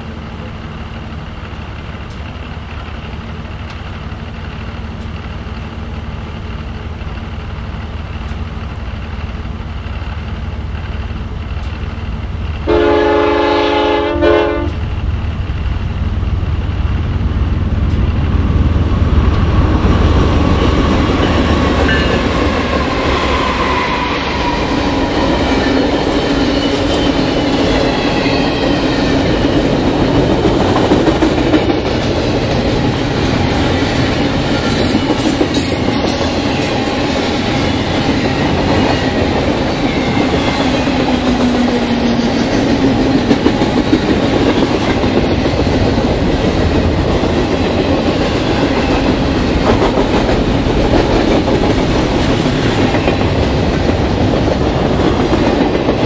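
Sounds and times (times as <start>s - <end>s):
diesel locomotive drone: 0.0s - 56.0s
train wheels clacking over rail joints: 19.3s - 56.0s.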